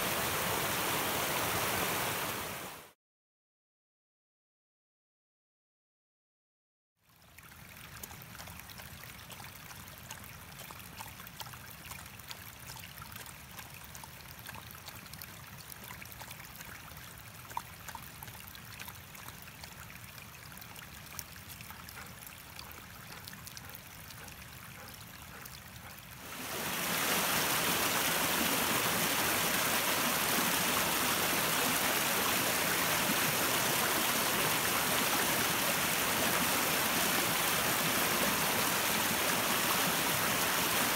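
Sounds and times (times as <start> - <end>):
water rushing: 0.0 - 3.0, 14.5 - 40.9
brook trickling over stones: 7.0 - 40.9
small water splashes: 7.0 - 40.9.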